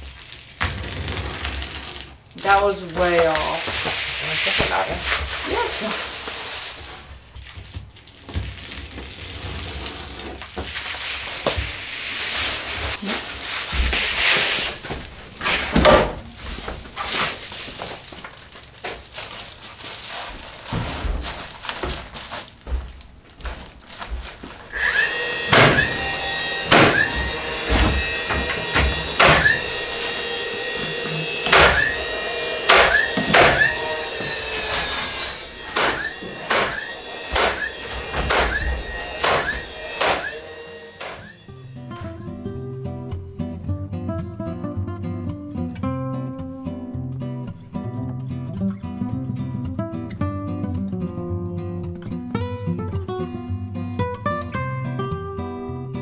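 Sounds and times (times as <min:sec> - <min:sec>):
foil insulation crinkling: 0:00.0 - 0:25.1
stapler firing: 0:24.8 - 0:29.6, 0:31.4 - 0:32.0, 0:32.7 - 0:40.4, 0:41.0 - 0:41.3
sharp knocks: 0:32.7 - 0:34.4, 0:35.7 - 0:40.4.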